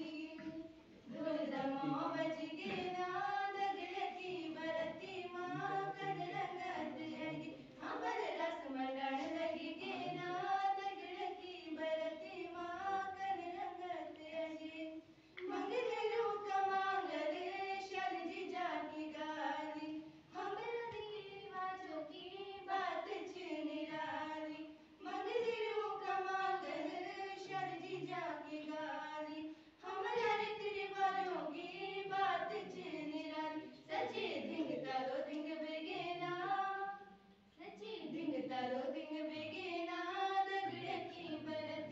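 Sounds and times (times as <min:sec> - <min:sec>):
girls singing folk song: 0:00.0 - 0:41.9.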